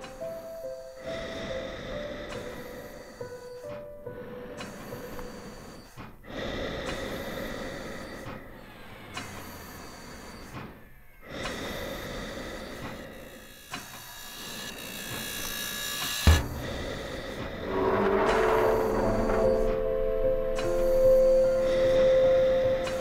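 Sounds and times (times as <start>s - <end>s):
breathing through oxygen mask: 0.3s - 8.6s, 9.2s - 14.0s
sharp thump: 16.3s - 17.6s.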